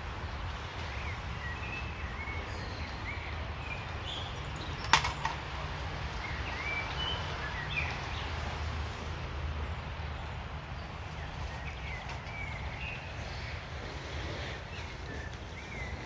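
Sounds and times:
outdoor background hiss: 0.0s - 16.0s
bird chirps: 11.2s - 16.0s.

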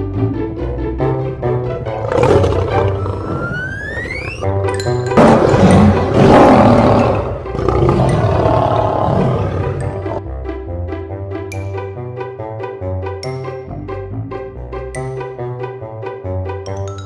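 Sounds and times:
background music: 0.0s - 17.0s
lion roaring: 1.9s - 4.4s, 5.2s - 10.2s.

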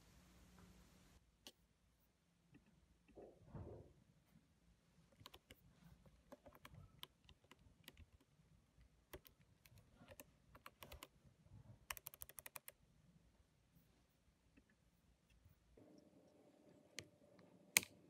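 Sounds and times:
laptop keyboard typing: 5.2s - 5.6s, 6.2s - 8.3s, 9.1s - 11.1s, 11.9s - 12.8s.

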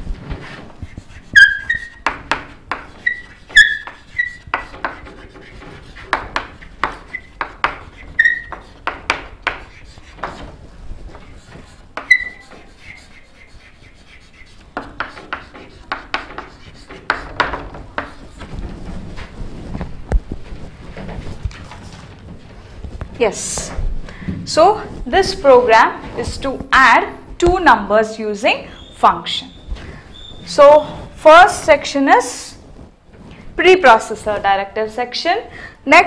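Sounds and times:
chalk scratching on a chalkboard: 0.2s - 23.8s, 24.6s - 27.3s, 28.0s - 34.6s
chalk squeaking: 0.4s - 23.7s, 28.4s - 31.8s.

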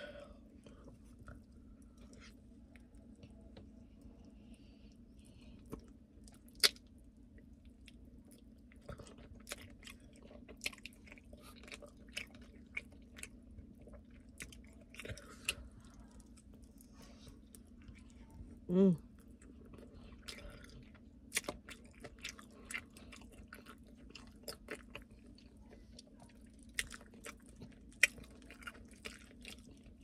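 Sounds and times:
chewing and mouth smacks: 5.6s - 18.4s, 19.1s - 30.0s.

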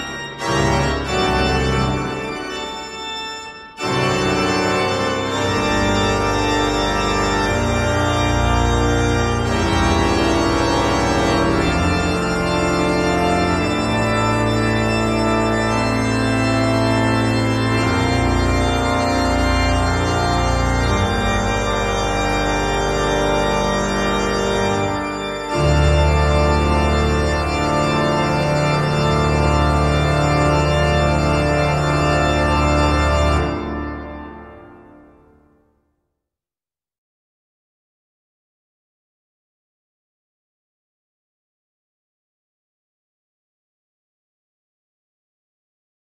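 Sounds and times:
music of long held chords: 0.0s - 35.6s.

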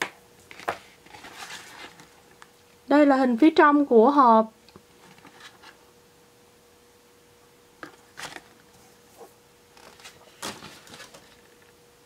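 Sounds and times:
faint steady hum: 0.0s - 12.0s
hands handling cardboard and plastic: 0.4s - 2.5s, 7.8s - 11.8s.

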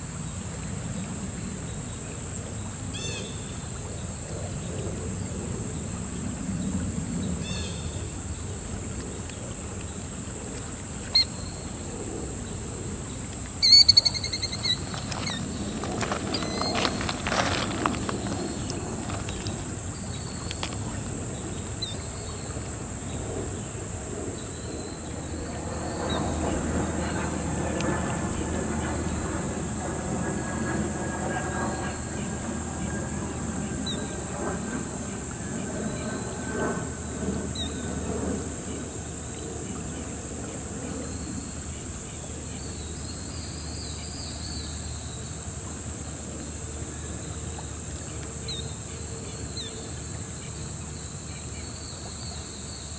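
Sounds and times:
high-pitched insect drone: 10.8s - 42.6s.

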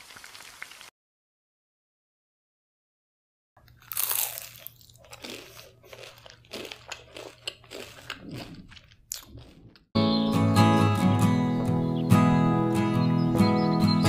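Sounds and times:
crispy food crunching: 3.6s - 9.9s.

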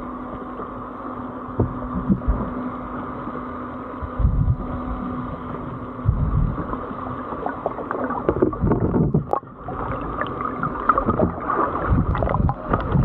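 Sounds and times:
underwater sloshing and gurgling: 0.0s - 13.0s
knocks against boat hull: 1.6s - 2.4s.

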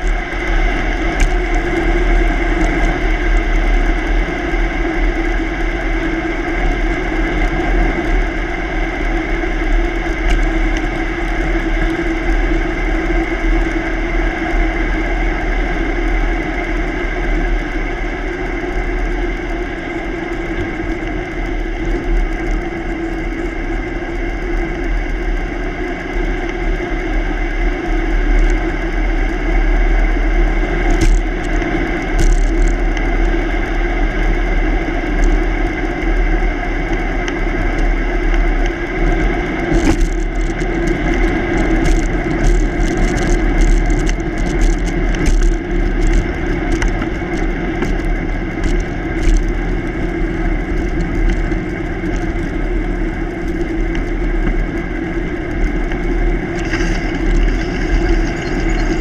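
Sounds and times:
bicycle tyre rumble on asphalt: 0.0s - 59.0s
sharp clicks and ticks: 30.8s - 33.4s, 36.9s - 59.0s.

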